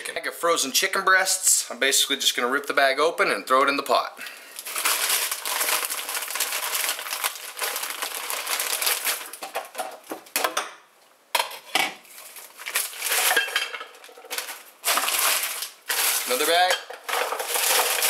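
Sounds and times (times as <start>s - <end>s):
plastic bag crinkling: 4.3s - 10.1s, 12.0s - 18.0s.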